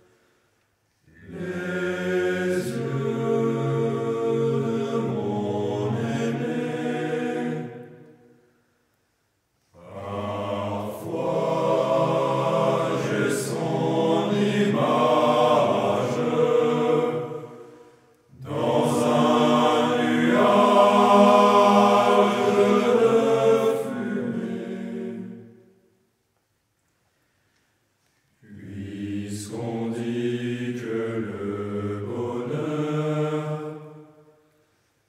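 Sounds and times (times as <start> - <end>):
choir singing a slow song: 0.0 - 8.8, 9.6 - 26.1, 28.3 - 35.0.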